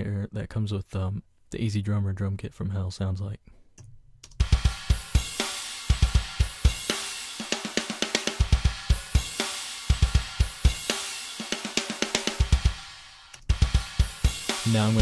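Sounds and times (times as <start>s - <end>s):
snare drum: 4.4s - 12.8s, 13.5s - 15.0s
cymbals and hi-hat: 4.4s - 15.0s.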